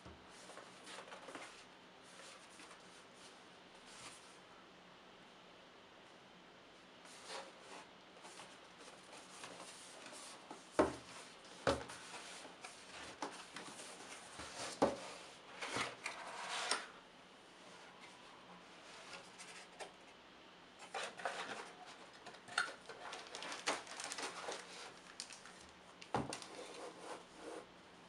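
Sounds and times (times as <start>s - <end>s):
plastic wrap rustling: 20.9s - 27.2s.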